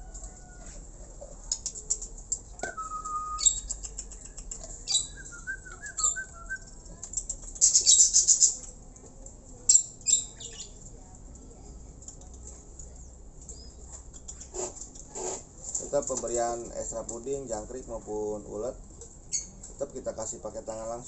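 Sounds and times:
caged birds chirping: 0.0s - 21.0s
bird whistle: 4.9s - 6.6s.

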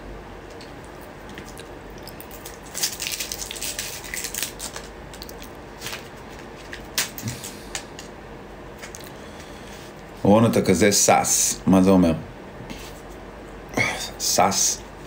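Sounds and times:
faint steady hum: 0.0s - 15.0s
rustling and crackling with clicks: 0.4s - 8.2s.

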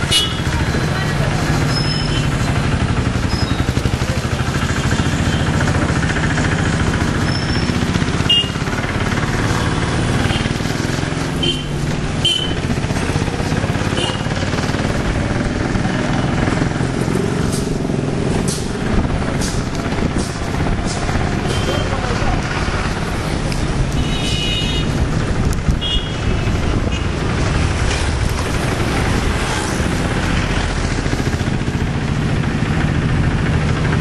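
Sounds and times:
motor vehicles running: 0.0s - 34.0s.

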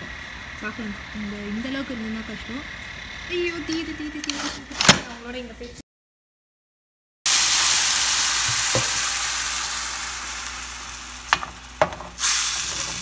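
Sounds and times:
garlic sizzling in oil: 7.3s - 13.0s.

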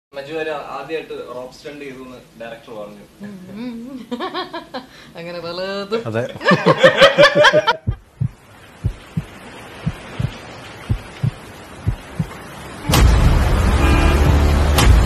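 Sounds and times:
heartbeat double thump: 7.8s - 12.4s
car horn blaring: 12.8s - 14.6s.

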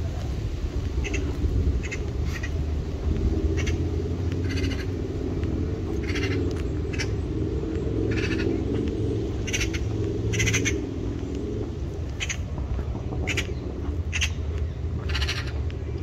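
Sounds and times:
steady low rumble: 0.0s - 16.0s
bird calling: 1.0s - 2.6s, 4.4s - 5.0s, 6.0s - 7.3s, 8.1s - 11.0s, 12.0s - 12.5s, 13.1s - 15.7s.

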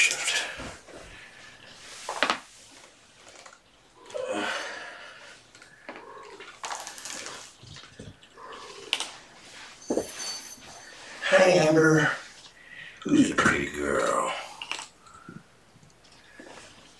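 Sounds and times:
clothing rustling and shuffling: 0.0s - 3.4s, 9.2s - 12.6s.

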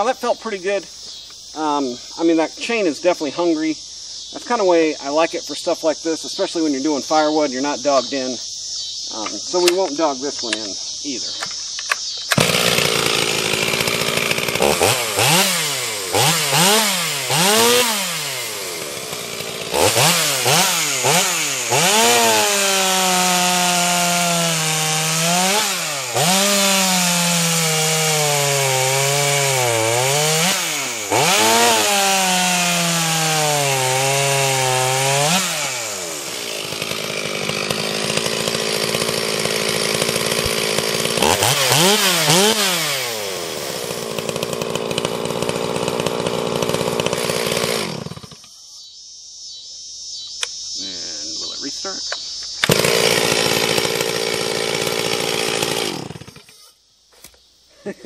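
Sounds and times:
chainsaw revving and cutting log: 12.2s - 48.5s, 52.6s - 56.8s.

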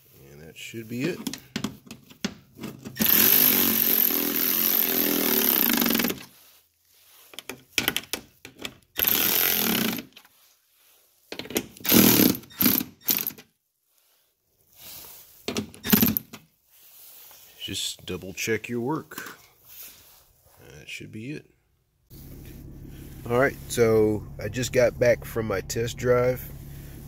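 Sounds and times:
electric ratchet tightening bolts: 3.0s - 6.3s, 9.0s - 10.2s, 11.8s - 13.4s, 15.8s - 16.3s.

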